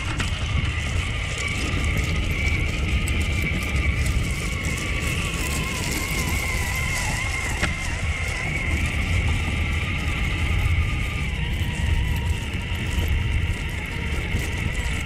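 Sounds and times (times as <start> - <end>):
toy car motor whining: 0.0 - 15.0
wheels rumbling over pebbles: 0.0 - 15.0.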